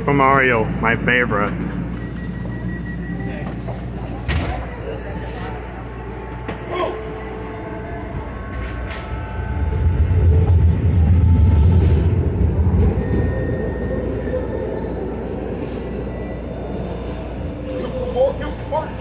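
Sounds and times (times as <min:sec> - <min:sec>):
trolley car rumbling on rails: 0:06.2 - 0:17.4.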